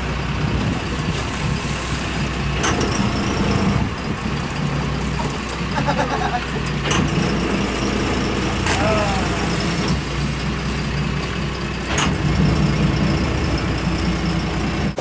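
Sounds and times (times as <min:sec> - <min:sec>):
boat engine running: 0:00.0 - 0:15.0
wind: 0:00.0 - 0:15.0
sea noise: 0:07.3 - 0:11.9.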